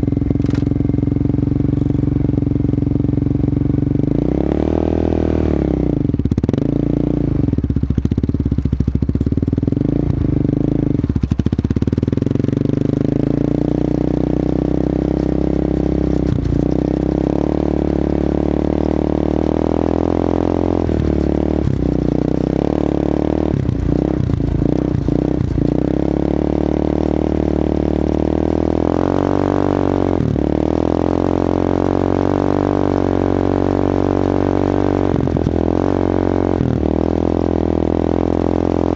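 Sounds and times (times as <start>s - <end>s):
atv engine running under load: 0.0s - 38.9s.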